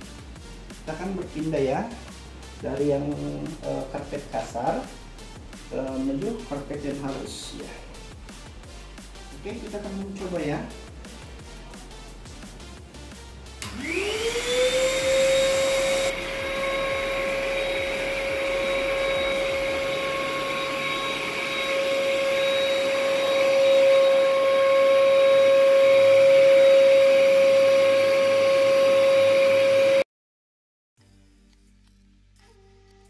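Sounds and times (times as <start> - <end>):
vacuum cleaner motor whine: 13.6 - 30.0.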